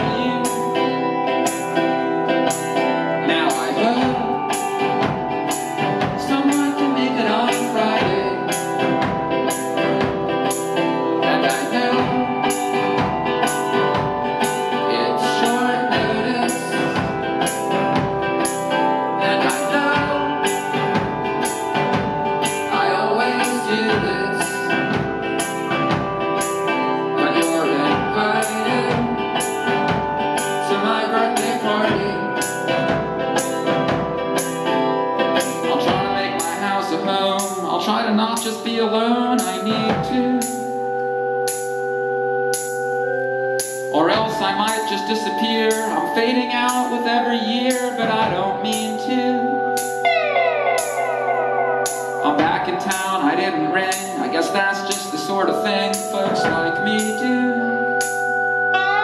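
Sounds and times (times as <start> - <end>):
strummed acoustic guitar: 0.0 - 40.6, 43.9 - 58.2
sustained keyboard and guitar chords: 0.0 - 59.0
drum kit steady beat: 3.6 - 6.8, 7.5 - 14.8, 15.4 - 22.7, 23.4 - 30.7, 31.4 - 36.6, 50.8 - 53.2.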